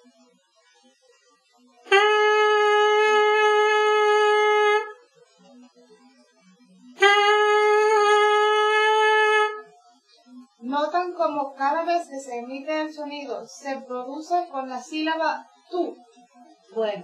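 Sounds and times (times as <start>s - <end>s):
trumpet mouthpiece buzzing: 1.8s - 5.0s, 7.0s - 9.8s.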